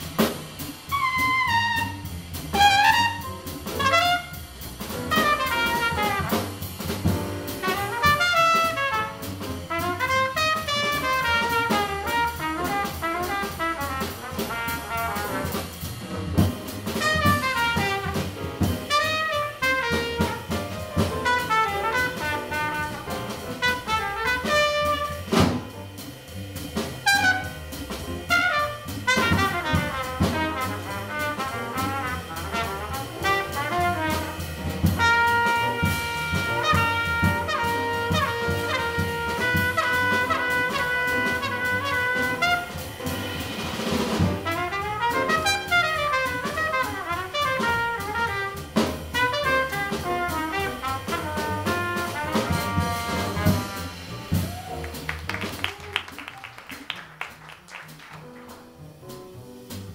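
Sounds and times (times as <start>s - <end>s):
jazz group playing: 0.0s - 59.9s
sharp drum accent: 0.0s - 59.9s.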